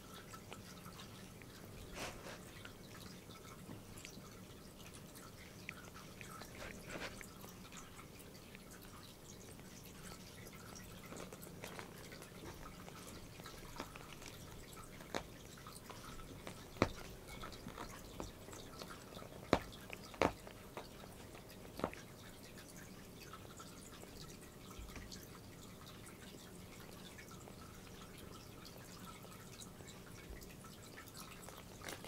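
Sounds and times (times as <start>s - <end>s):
cat licking fur: 0.0s - 32.0s.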